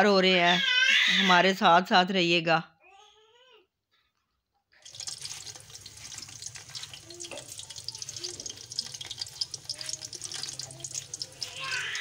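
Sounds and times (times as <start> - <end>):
onions sizzling in hot fat: 4.8 - 12.0.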